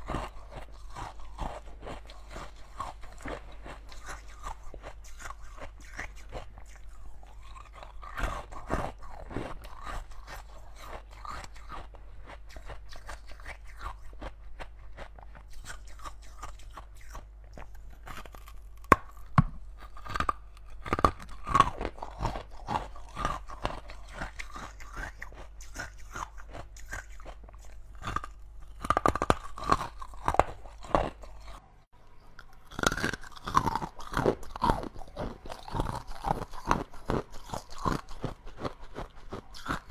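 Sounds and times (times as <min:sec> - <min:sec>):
ice cubes crunching: 0:17.1 - 0:31.6.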